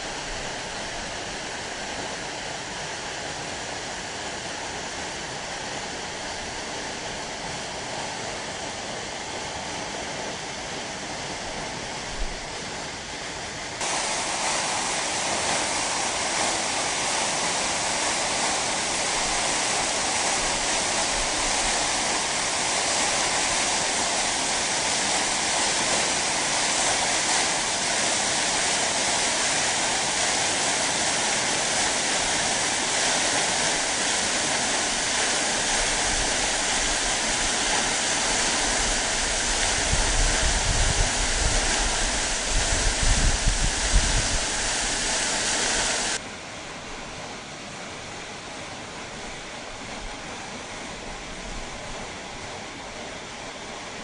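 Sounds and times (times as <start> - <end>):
waterfall rushing: 13.8 - 46.2.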